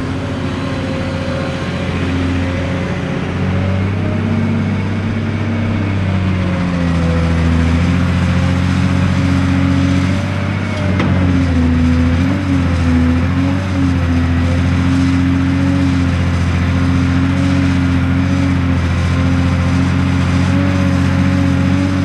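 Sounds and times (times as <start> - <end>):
thin whine: 0.0 - 13.2
excavator diesel engine under load: 0.0 - 22.0.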